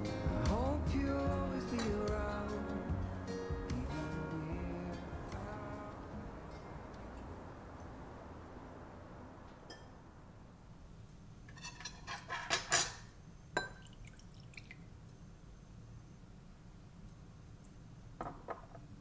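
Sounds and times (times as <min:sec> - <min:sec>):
background music: 0:00.0 - 0:07.7
glassware clinking: 0:01.7 - 0:02.1, 0:09.7 - 0:10.0, 0:11.5 - 0:13.9.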